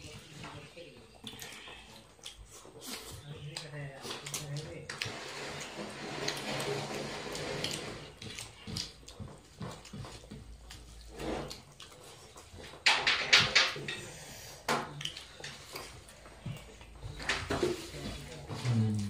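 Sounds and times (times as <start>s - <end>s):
wet eating and chewing: 0.0s - 19.0s.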